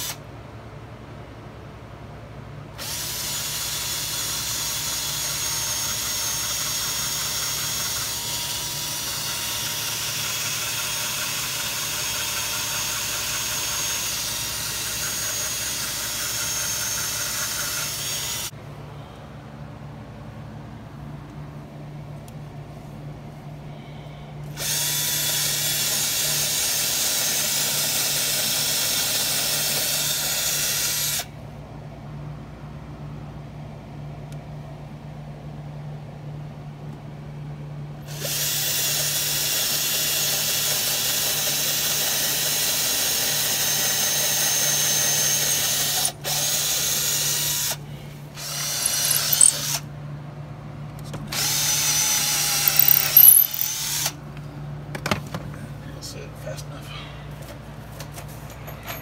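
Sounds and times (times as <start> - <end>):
cordless drill boring into wood: 2.8 - 18.5, 24.6 - 31.3, 38.1 - 47.8, 48.4 - 49.8, 51.3 - 54.1.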